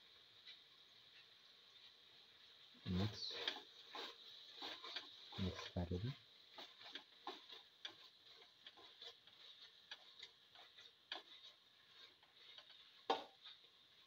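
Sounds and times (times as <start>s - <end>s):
spatula scraping in pan: 0.3s - 14.0s.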